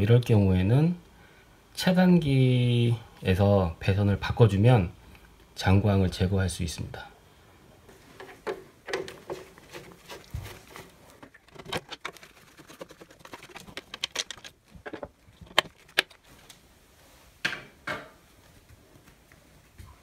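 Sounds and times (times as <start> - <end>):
plastic cover clicking and scraping: 8.2 - 16.3.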